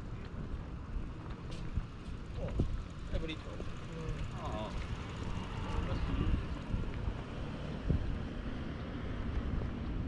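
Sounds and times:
wind buffeting microphone: 0.0 - 3.7, 5.7 - 10.0
distant road traffic: 0.0 - 10.0.

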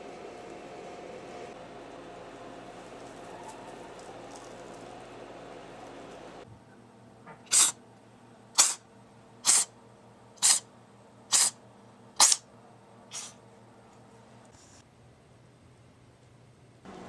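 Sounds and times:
cat sneezing: 7.5 - 7.8, 8.6 - 9.8, 10.4 - 10.7, 11.3 - 11.6, 12.2 - 12.5, 13.1 - 13.4.

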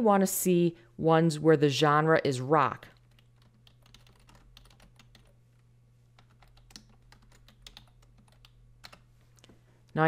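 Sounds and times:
low steady hum: 0.0 - 10.0
typing on computer keyboard: 2.9 - 5.4, 6.2 - 9.1.

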